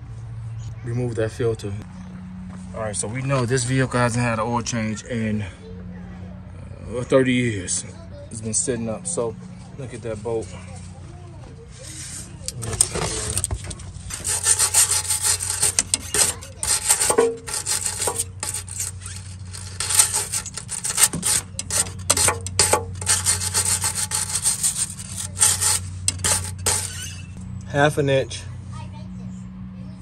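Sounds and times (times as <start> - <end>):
steady low hum: 10.5 - 29.6
wire brush scrubbing metal: 11.7 - 27.4.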